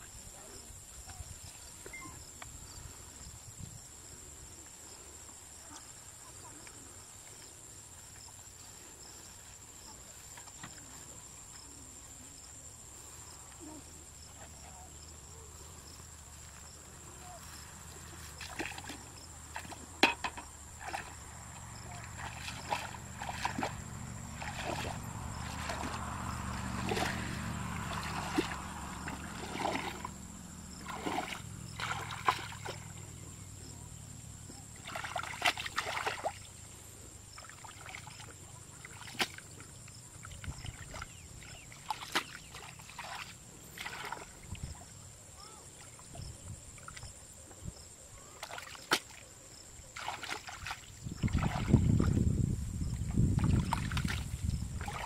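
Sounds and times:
hands splashing in muddy water: 18.0 - 20.0, 20.8 - 21.2, 21.8 - 30.2, 30.8 - 32.9, 34.8 - 36.6, 37.4 - 39.7, 40.3 - 44.5, 48.4 - 49.3, 49.9 - 52.2, 53.0 - 55.0.

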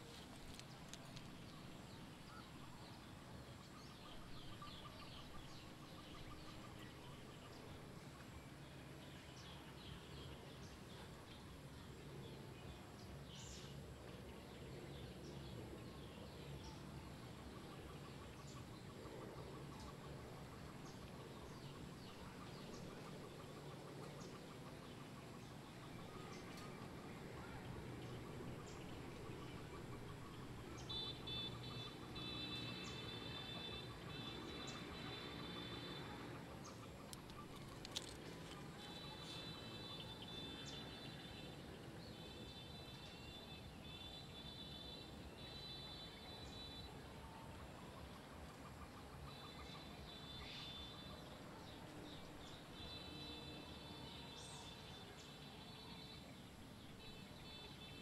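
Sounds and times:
birds chirping: 0.0 - 46.9.

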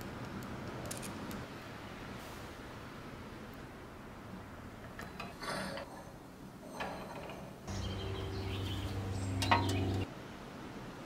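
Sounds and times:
steady low hum: 7.6 - 11.0.

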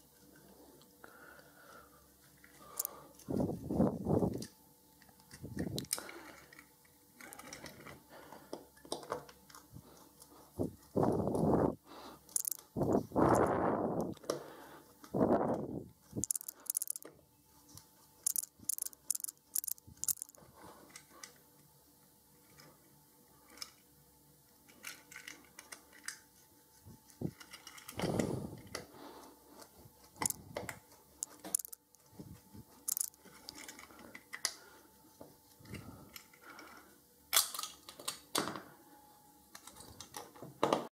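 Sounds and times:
small parts clicking and rattling: 2.3 - 11.6, 12.2 - 14.3, 15.0 - 21.5, 22.4 - 23.9, 24.5 - 28.9, 29.6 - 34.7, 35.6 - 38.6.

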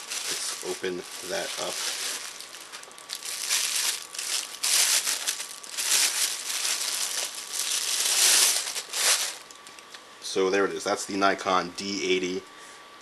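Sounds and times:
plastic wrapping crinkling: 0.0 - 9.9.

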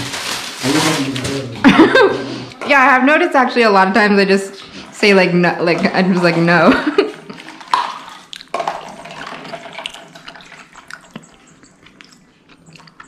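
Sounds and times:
juice pouring into plastic cup: 7.3 - 11.2.

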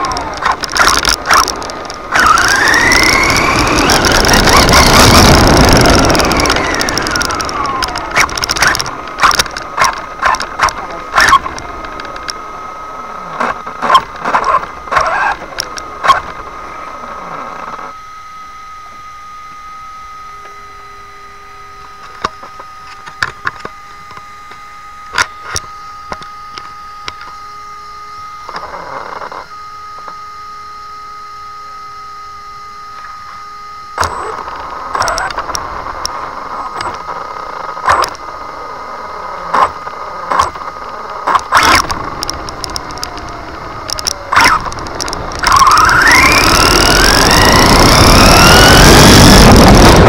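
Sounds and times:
sharp clicks and knocks: 0.0 - 12.4, 39.5 - 50.0
electric motor whine: 0.0 - 50.0.

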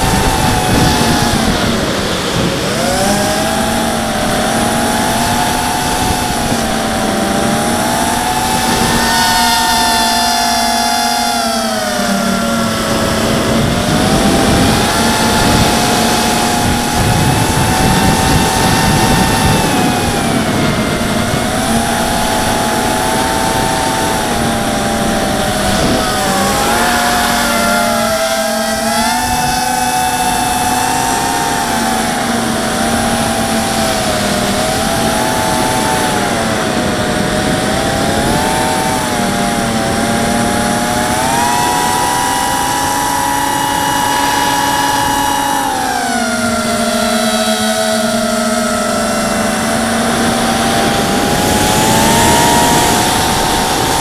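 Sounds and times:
quadcopter motors whining: 0.0 - 54.0
wind noise on microphone: 0.0 - 54.0.

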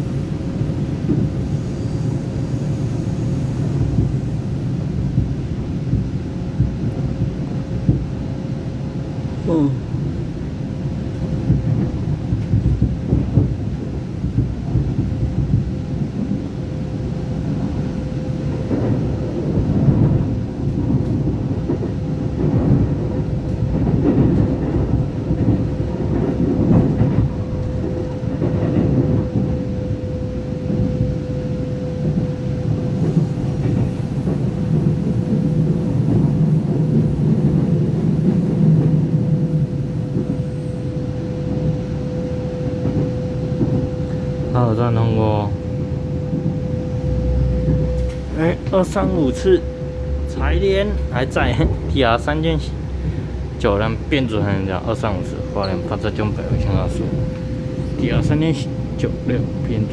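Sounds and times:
train wheels rumbling on rail: 0.0 - 59.9
clatter over track: 11.1 - 16.5, 17.4 - 29.7.

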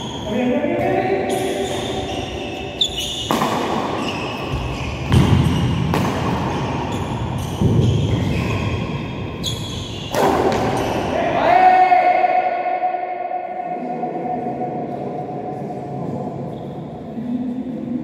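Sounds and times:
shoes squeaking on court floor: 0.0 - 11.1
rackets hitting shuttlecock: 2.8 - 8.4, 9.6 - 11.1.

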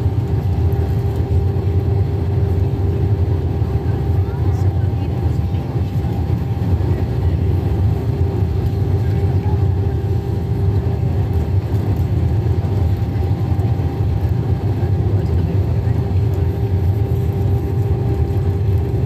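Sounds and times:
constant hum: 0.0 - 19.0
jet engine drone: 0.0 - 19.0.

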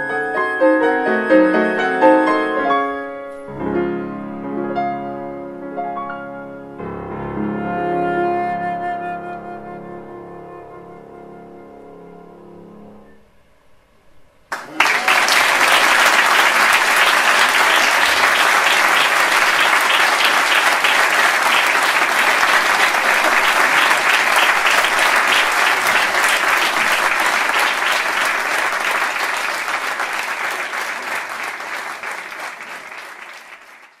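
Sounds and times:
audience applauding: 14.5 - 34.0.

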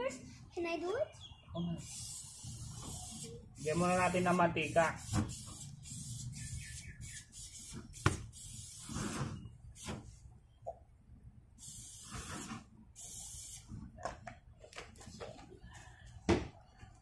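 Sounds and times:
oil hissing on hot grill: 1.8 - 9.9, 11.6 - 13.6.

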